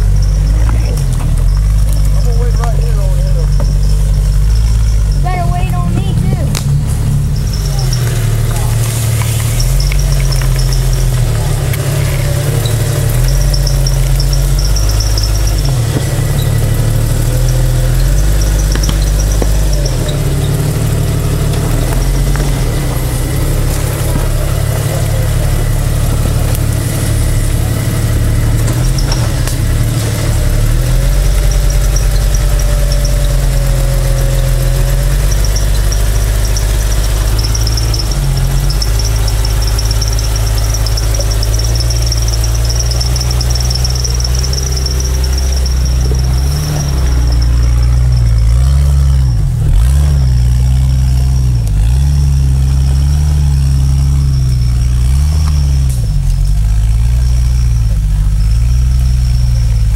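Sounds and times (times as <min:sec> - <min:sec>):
car engine rumbling at low revs: 0:00.0 - 0:59.9.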